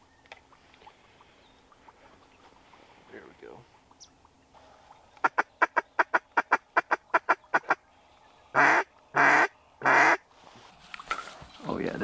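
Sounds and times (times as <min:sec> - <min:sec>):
duck quacking: 0:05.2 - 0:07.8, 0:08.6 - 0:10.2.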